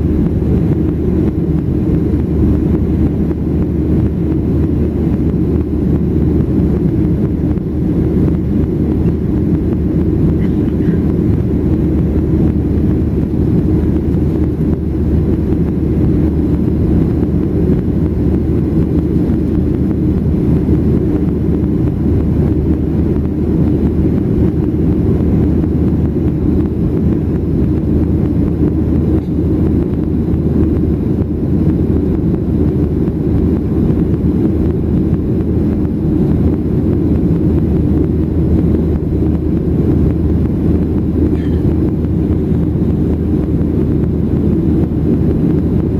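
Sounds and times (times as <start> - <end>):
airplane cabin engine rush: 0.0 - 45.9
low hum: 0.0 - 45.9.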